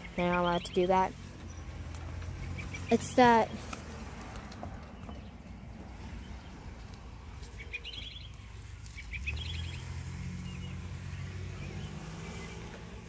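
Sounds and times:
construction machinery engine hum: 0.0 - 13.0
small bird chirping: 4.9 - 13.0.

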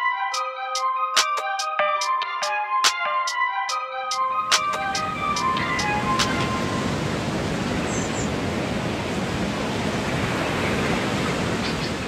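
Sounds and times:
loud wash of noise: 4.4 - 11.7.

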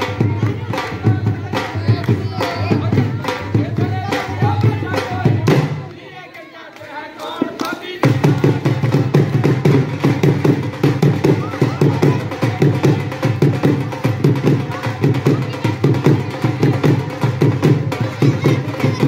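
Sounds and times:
dhol drum beating fast rhythm: 0.0 - 19.0
group singing: 0.0 - 19.0.

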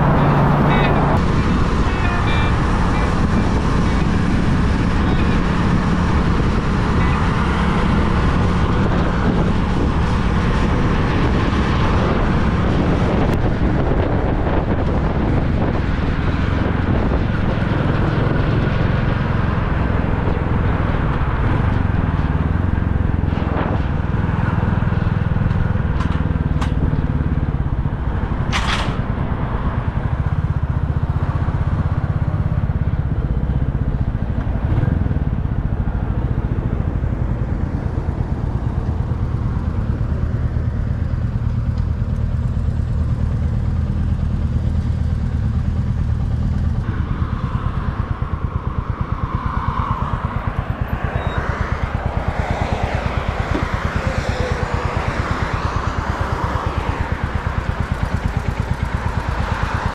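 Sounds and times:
motorcycle engine rumbling: 0.0 - 59.9.

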